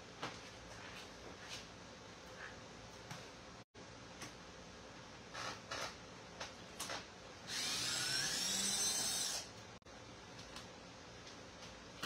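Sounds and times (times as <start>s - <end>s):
cordless drill motor whining: 7.5s - 9.5s.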